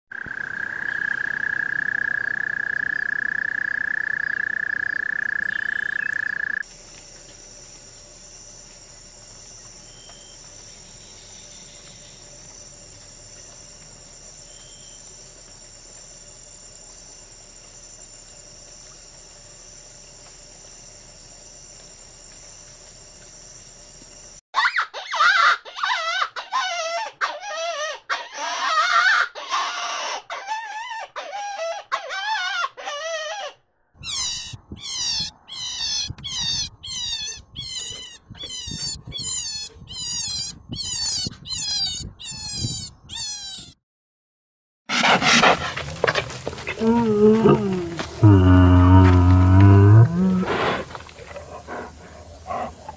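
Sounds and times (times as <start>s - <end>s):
insect chirring: 0.1s - 24.4s, 44.9s - 52.9s
toad trilling: 0.2s - 6.6s, 32.2s - 43.8s.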